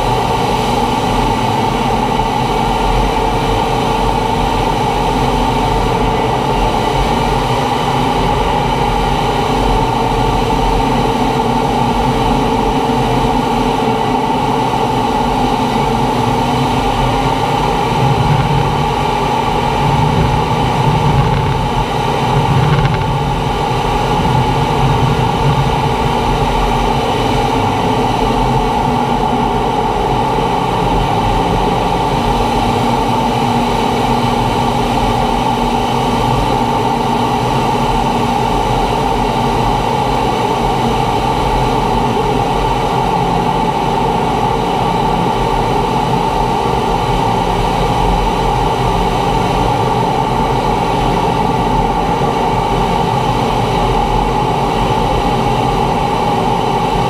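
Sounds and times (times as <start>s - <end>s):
jet engine hum and whine: 0.0s - 57.0s
deep rumble: 15.8s - 39.4s.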